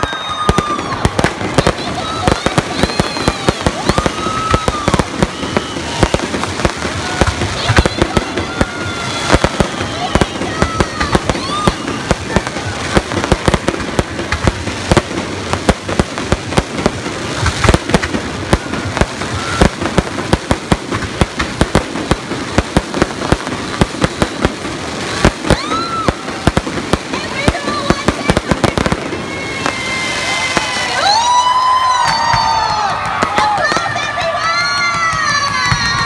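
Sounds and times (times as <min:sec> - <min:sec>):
fireworks bangs and crackling: 0:00.0 - 0:36.0.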